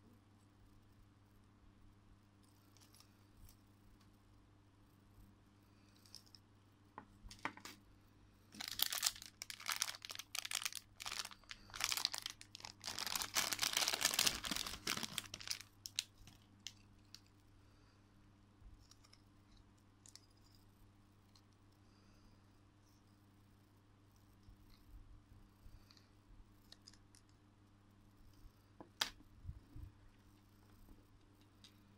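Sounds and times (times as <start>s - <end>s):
plastic bag crinkling and tearing: 8.5s - 16.4s.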